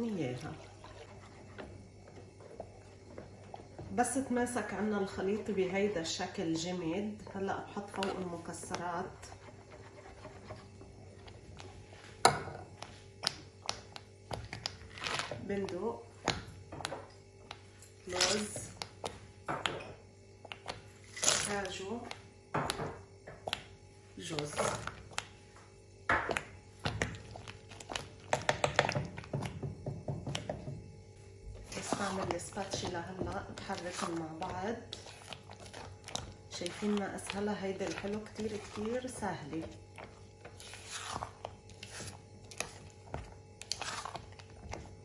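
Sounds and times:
whisk thumping pot: 0:00.0 - 0:17.1, 0:26.1 - 0:30.9, 0:31.6 - 0:45.0
faint steady hum: 0:00.0 - 0:45.0.

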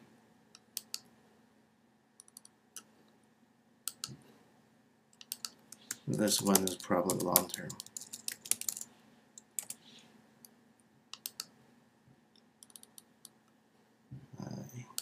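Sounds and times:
mouse clicks: 0:00.6 - 0:01.1, 0:03.9 - 0:04.2, 0:05.2 - 0:08.8, 0:11.1 - 0:11.5, 0:12.6 - 0:13.4
keyboard keystrokes: 0:05.2 - 0:08.8.

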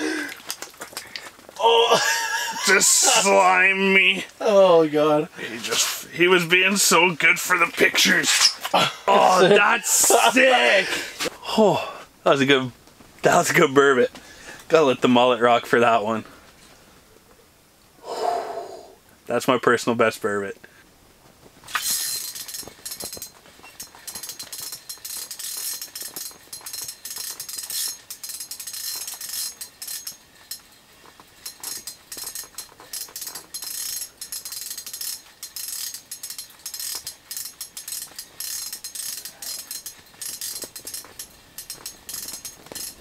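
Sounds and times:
fishing reel clicking: 0:21.7 - 0:43.0.

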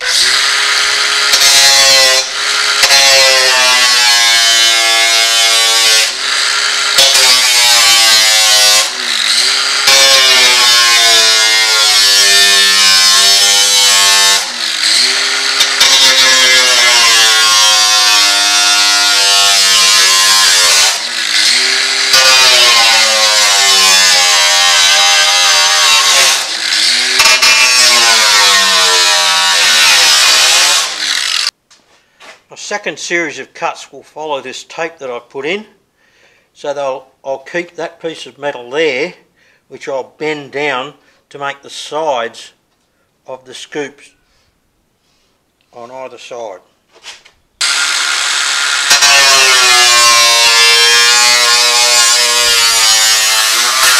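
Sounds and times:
angle grinder cutting sheet metal: 0:00.0 - 0:31.6, 0:47.6 - 0:53.9.

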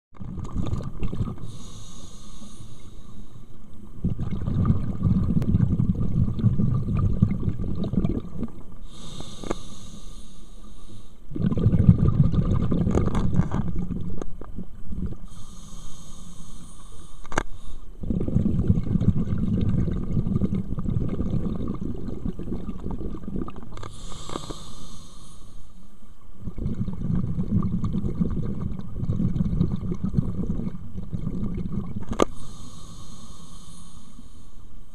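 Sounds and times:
regulator inhale hiss: 0:01.4 - 0:03.6, 0:08.8 - 0:11.3, 0:15.2 - 0:18.0, 0:23.8 - 0:26.0, 0:32.2 - 0:34.9
exhaust bubbles rumbling: 0:04.0 - 0:08.6, 0:11.3 - 0:15.2, 0:18.0 - 0:23.7, 0:26.4 - 0:32.0.

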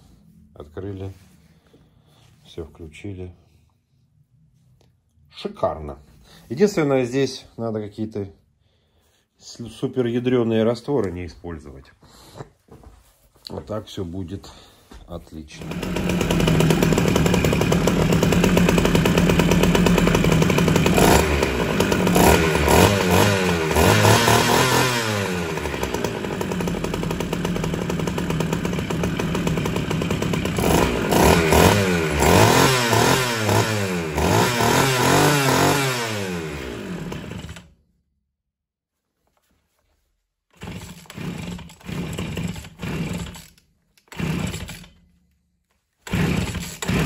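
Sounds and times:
chainsaw engine revving: 0:15.5 - 0:37.7, 0:40.6 - 0:45.0, 0:46.0 - 0:47.0.

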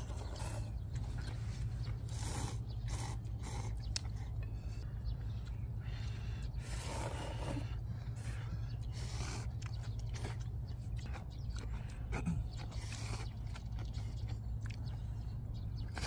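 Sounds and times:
steady low rumble: 0:00.0 - 0:16.0
people slurping noodles: 0:02.0 - 0:04.2, 0:06.6 - 0:08.3.

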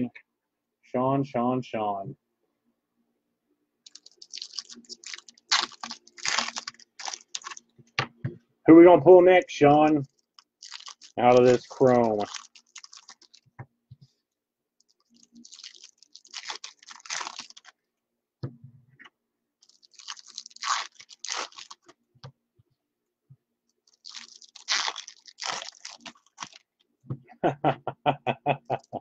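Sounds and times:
foil wrapper crinkling and tearing: 0:03.9 - 0:07.7, 0:09.8 - 0:13.5, 0:14.8 - 0:17.8, 0:19.6 - 0:22.0, 0:23.8 - 0:26.7.

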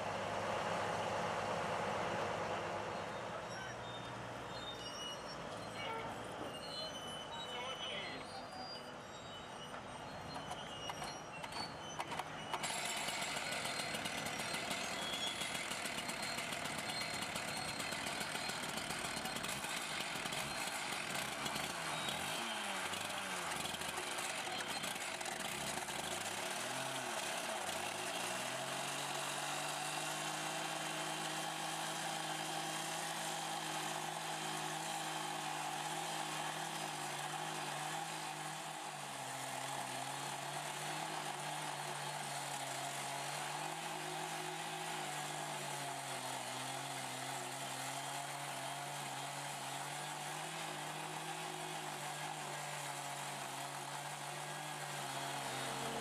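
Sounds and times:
cut-off saw grinding steel: 0:12.5 - 0:56.0.

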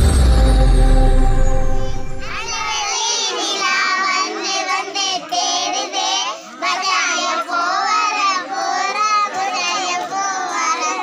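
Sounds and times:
girls singing together: 0:02.2 - 0:11.0.

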